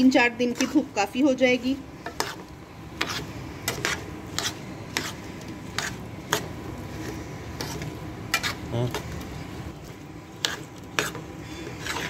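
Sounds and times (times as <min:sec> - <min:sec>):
metal spoon scraping steel bowl: 0:03.0 - 0:06.5, 0:07.6 - 0:08.6, 0:10.4 - 0:12.0.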